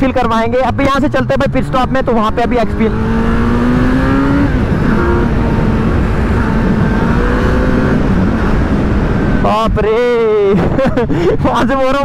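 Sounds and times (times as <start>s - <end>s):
motorcycle engine accelerating: 0.0s - 10.2s
wind noise on microphone: 2.8s - 11.6s.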